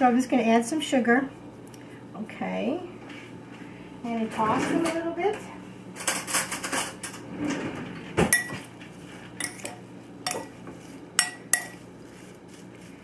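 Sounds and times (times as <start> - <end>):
spoon clinking on glass bowl: 8.3 - 8.6, 9.4 - 10.6, 11.2 - 11.8.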